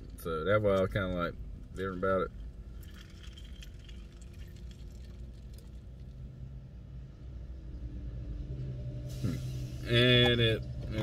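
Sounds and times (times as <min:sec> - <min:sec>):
low steady hum: 0:00.0 - 0:11.0
drink trickling into paper cup: 0:02.8 - 0:05.8.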